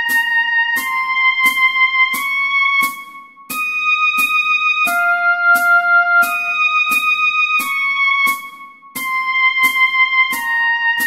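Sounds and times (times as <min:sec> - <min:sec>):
steady ticking beat: 0:00.0 - 0:11.0
oboe playing slow melody: 0:04.8 - 0:08.4.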